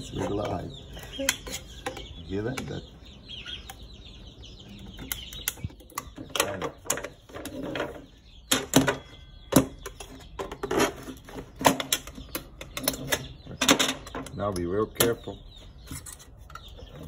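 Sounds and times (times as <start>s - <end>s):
chicken clucking: 0.0s - 8.5s.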